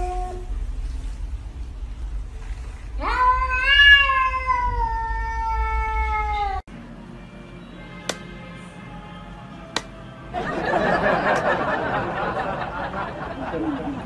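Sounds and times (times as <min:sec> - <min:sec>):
cat yowling: 0:03.0 - 0:06.6.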